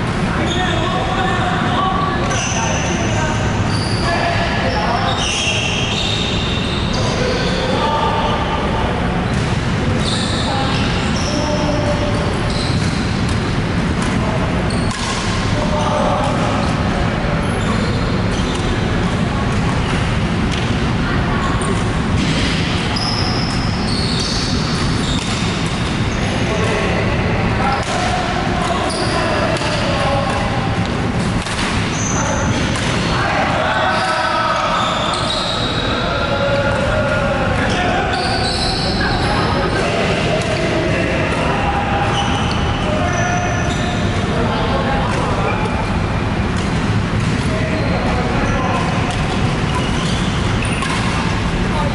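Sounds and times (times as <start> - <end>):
players' voices: 0.0 - 51.9
rackets hitting shuttlecocks: 29.5 - 33.1, 48.8 - 51.6.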